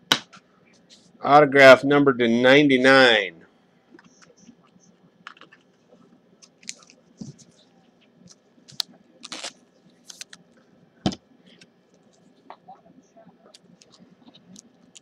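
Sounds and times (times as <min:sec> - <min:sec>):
trading card clicks and rustles: 0:06.4 - 0:07.6, 0:08.2 - 0:10.5.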